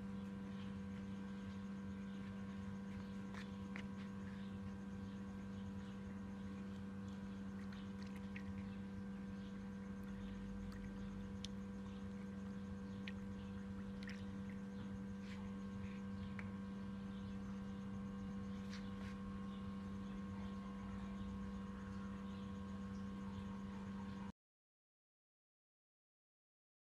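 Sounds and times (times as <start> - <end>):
low electrical hum: 0.0 - 24.3
faint ticks and clicks: 0.2 - 17.3.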